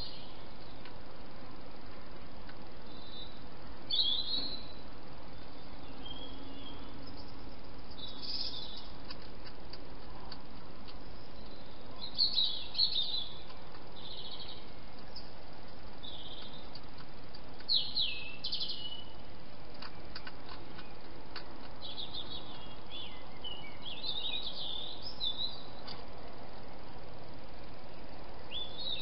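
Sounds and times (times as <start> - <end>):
bird chirping: 0.0 - 1.0, 2.8 - 26.0, 27.8 - 29.0
steady hiss: 0.0 - 29.0
faint clicks: 19.7 - 21.8.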